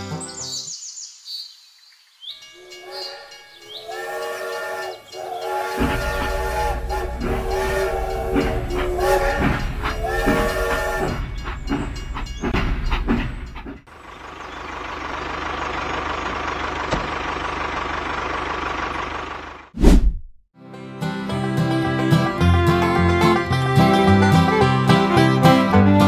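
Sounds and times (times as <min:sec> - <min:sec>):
toy train whistle: 0:02.6 - 0:11.2.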